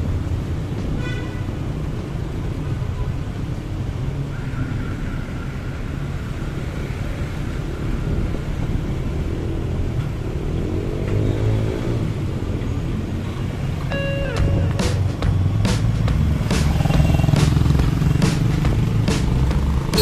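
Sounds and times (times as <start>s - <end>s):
motorcycle engine rumble: 12.0s - 20.0s.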